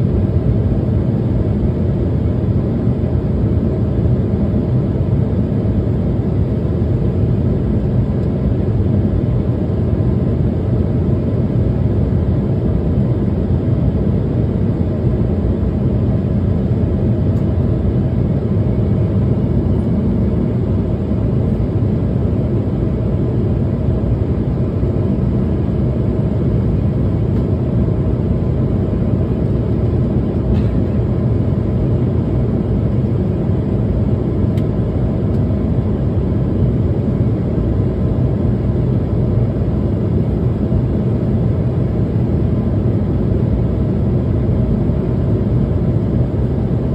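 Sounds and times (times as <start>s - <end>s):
airliner cabin roar: 0.0s - 46.9s.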